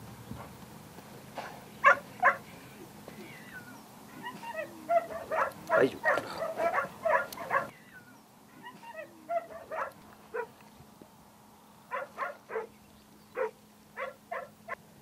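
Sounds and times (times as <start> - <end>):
dog whining and yipping: 3.5 - 7.7, 8.6 - 10.5.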